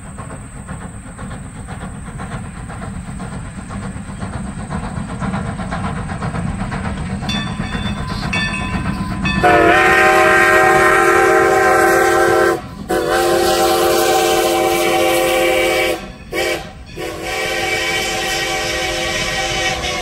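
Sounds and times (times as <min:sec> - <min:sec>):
low rumble of passing train: 0:00.0 - 0:20.0
steam locomotive whistle: 0:07.8 - 0:20.0.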